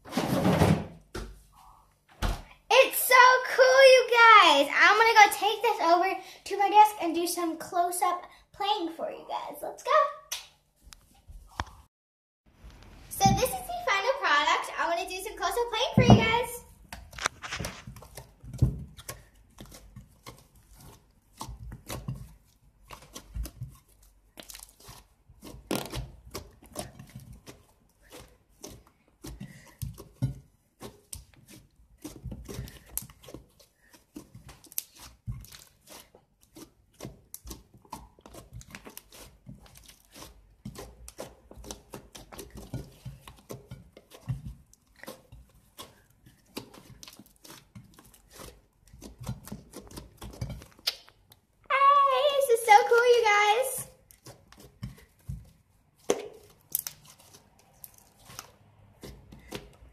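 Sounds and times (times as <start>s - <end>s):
slime popping and squelching: 16.2s - 53.3s, 54.0s - 59.9s.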